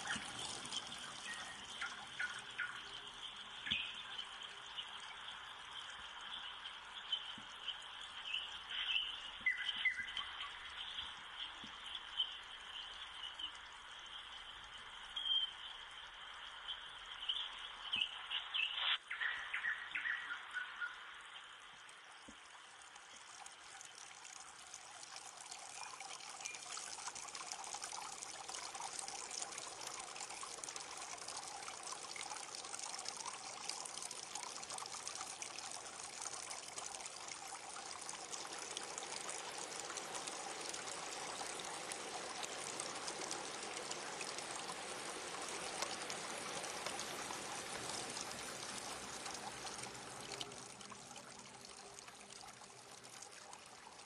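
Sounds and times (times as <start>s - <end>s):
stream splashing over rocks: 0.0s - 4.6s, 22.3s - 54.0s.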